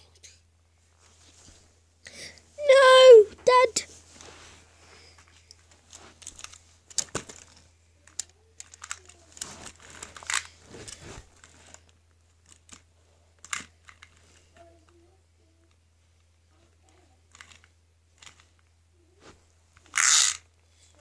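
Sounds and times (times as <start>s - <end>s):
plastic toys clicking: 6.4s - 9.5s
crinkly rustling: 8.6s - 12.8s.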